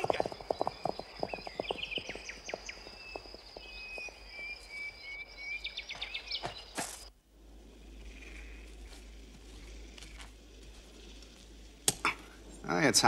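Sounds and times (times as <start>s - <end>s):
bird chirps: 0.0s - 7.1s
high insect drone: 0.0s - 13.0s
sharp crack: 11.8s - 12.3s.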